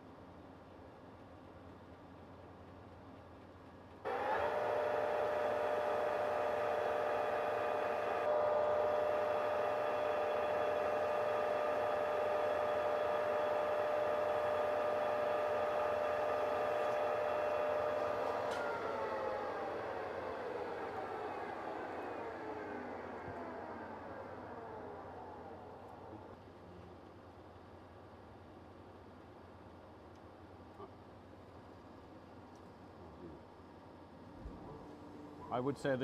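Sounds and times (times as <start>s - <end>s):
abrasive cloth polishing shaft: 4.1s - 26.3s
lathe gear whine: 4.1s - 26.4s.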